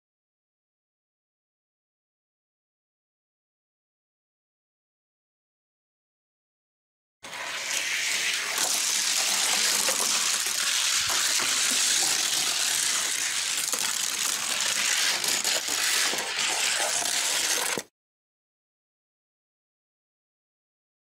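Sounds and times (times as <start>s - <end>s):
toy car wheels hissing on track: 7.2s - 17.9s.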